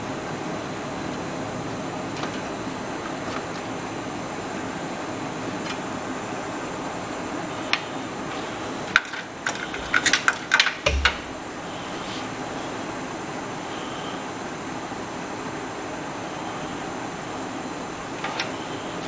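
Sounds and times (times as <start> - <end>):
steady background hum: 0.0 - 19.0
plastic connectors clicking and rattling: 9.0 - 11.2.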